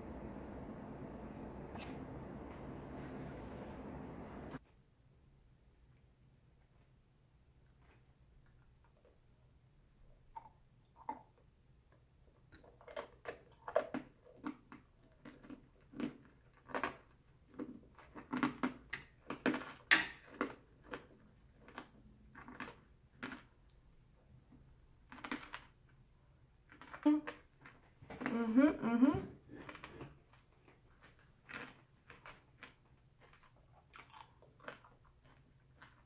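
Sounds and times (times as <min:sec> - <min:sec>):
chewing crunchy candy: 0:12.4 - 0:23.9, 0:25.0 - 0:28.5, 0:29.4 - 0:36.0.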